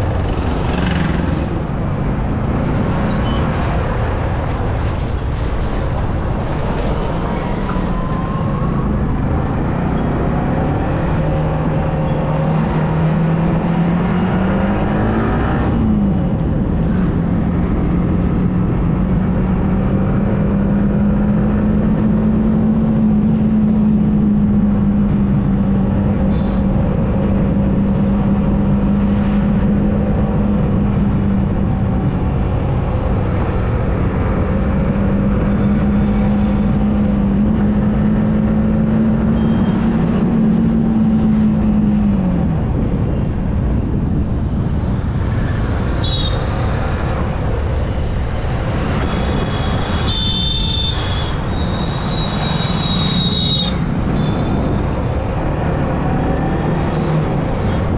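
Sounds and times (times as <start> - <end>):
motorcycle engine revving: 0.0 - 3.4
wind and road noise: 0.0 - 57.9.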